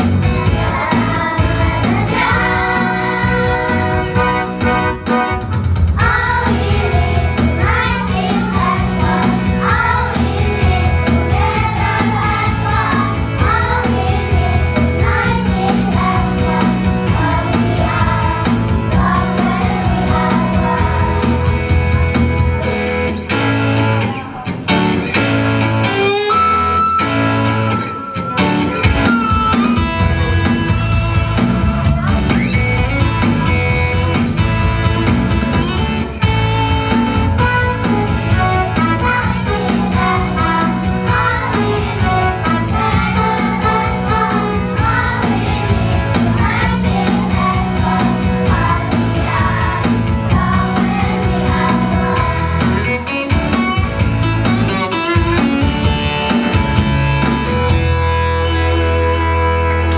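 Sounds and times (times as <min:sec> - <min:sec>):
backing music: 0:00.0 - 0:59.9
children singing: 0:00.4 - 0:04.5, 0:06.0 - 0:21.7, 0:38.4 - 0:53.1.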